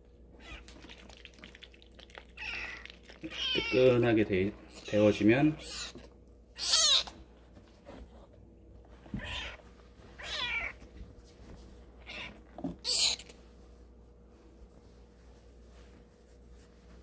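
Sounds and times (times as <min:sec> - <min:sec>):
kitten mewing: 0:02.2 - 0:03.8, 0:05.6 - 0:07.2, 0:09.2 - 0:09.6, 0:12.0 - 0:13.4.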